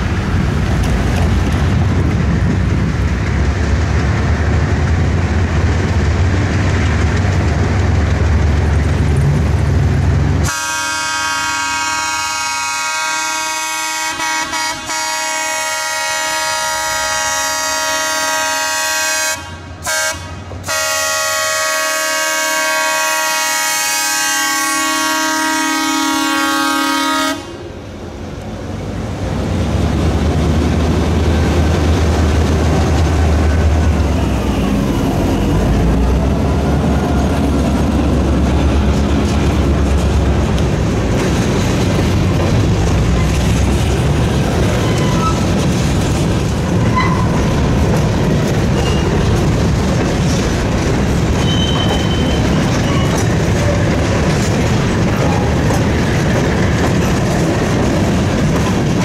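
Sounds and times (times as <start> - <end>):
train wheels clacking on rail joints: 0.0 - 10.6, 27.8 - 59.0
diesel locomotive engine rumble: 0.0 - 59.0
high wheel squeals: 44.7 - 45.6, 46.8 - 47.5, 48.7 - 49.2, 51.4 - 54.0.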